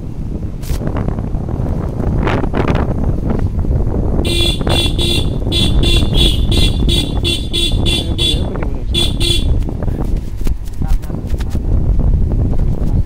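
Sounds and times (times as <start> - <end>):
low rumble of riding: 0.0 - 13.0
motorcycle horn beeping: 4.2 - 9.7.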